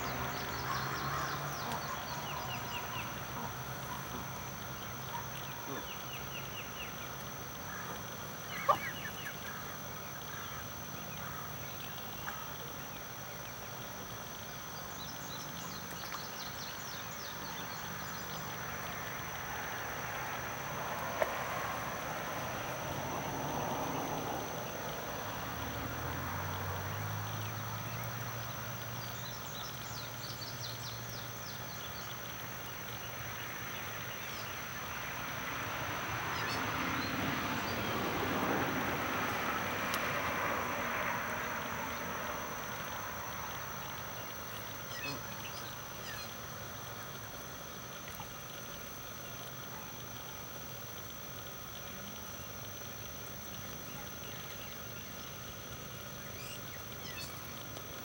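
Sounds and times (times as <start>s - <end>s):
small birds chirping: 0.0s - 13.8s, 43.5s - 50.4s, 53.5s - 58.0s.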